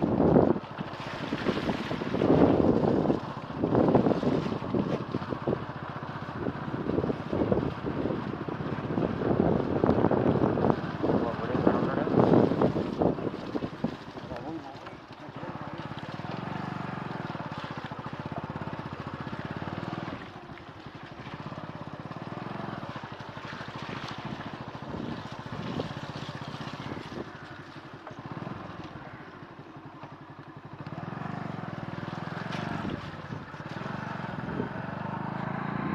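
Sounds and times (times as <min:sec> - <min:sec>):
motorcycle engine running: 0:00.0 - 0:35.9.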